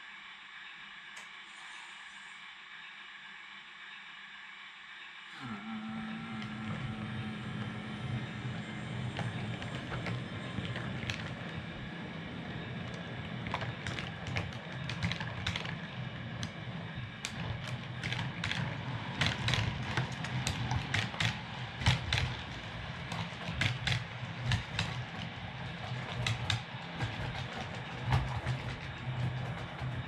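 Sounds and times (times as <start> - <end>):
model train motor hum: 0.2 - 30.0
wheels clicking over rail joints: 6.1 - 30.0.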